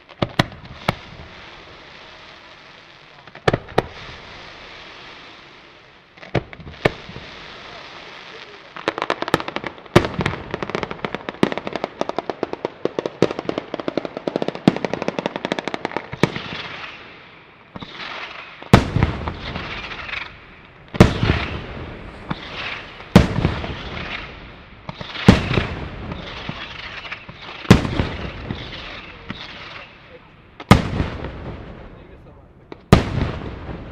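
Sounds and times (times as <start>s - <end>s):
loud firework bangs: 0.0s - 2.4s, 3.2s - 5.6s, 6.2s - 33.9s
firework crackling: 0.0s - 33.9s
rapid firework cracks: 0.0s - 33.9s.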